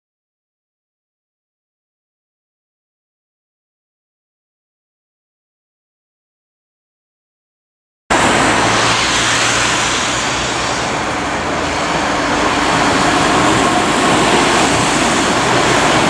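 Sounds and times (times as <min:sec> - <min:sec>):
street traffic: 0:08.1 - 0:16.0
train rolling across a bridge: 0:08.1 - 0:16.0.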